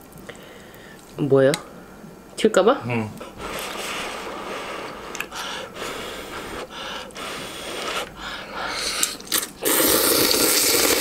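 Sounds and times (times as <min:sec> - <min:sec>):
person blowing on noodles: 0:03.4 - 0:11.0
person slurping noodles: 0:08.7 - 0:11.0.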